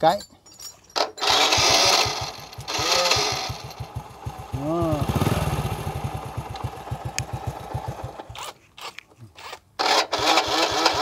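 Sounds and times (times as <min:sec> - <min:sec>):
electric starter motor cranking: 0:01.0 - 0:03.8, 0:08.1 - 0:11.0
motorcycle engine running: 0:01.2 - 0:08.4.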